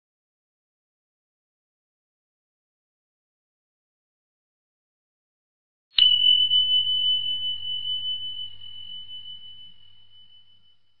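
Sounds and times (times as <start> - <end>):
high bell ringing: 6.0 - 11.0.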